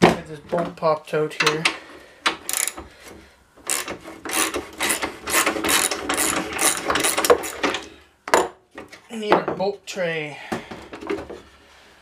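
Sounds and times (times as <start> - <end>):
ratchet wrench clicking: 2.5 - 2.8, 3.7 - 7.6.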